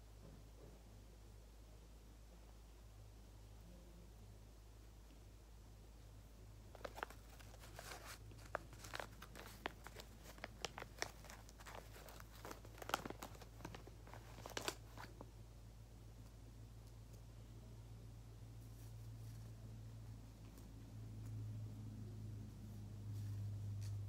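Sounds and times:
crafting materials crinkling: 0:06.7 - 0:15.3.

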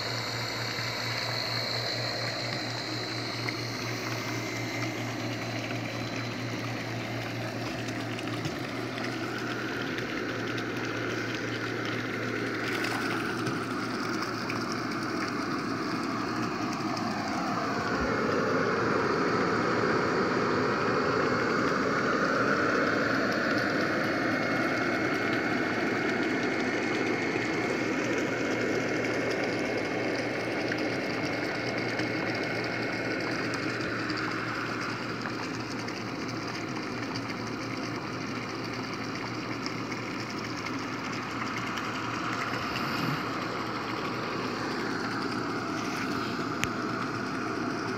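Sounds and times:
air blower humming: 0:00.0 - 0:23.5, 0:40.8 - 0:47.9.

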